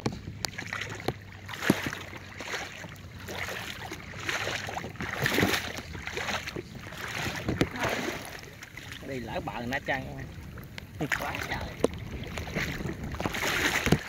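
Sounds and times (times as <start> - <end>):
water sloshing from wading: 0.0 - 14.0
sharp water splashes: 0.4 - 14.0.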